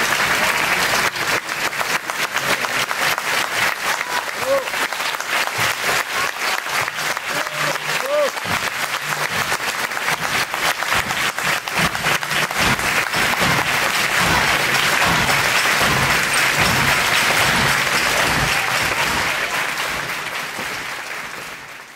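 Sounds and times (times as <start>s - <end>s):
audience applauding: 0.0s - 21.9s.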